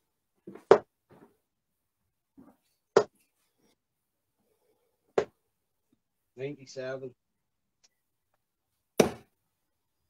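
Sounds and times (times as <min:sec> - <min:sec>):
dart striking dartboard: 0:09.0 - 0:09.3.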